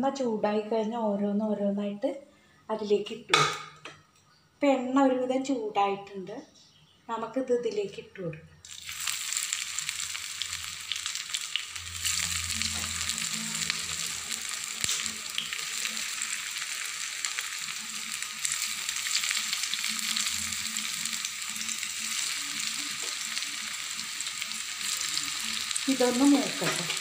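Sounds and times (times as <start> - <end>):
patties deep-frying in oil: 8.6 - 27.0.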